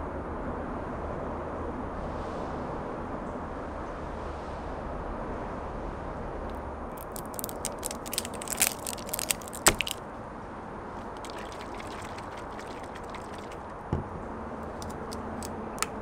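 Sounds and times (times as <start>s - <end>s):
plastic seal tearing: 7.0s - 10.0s.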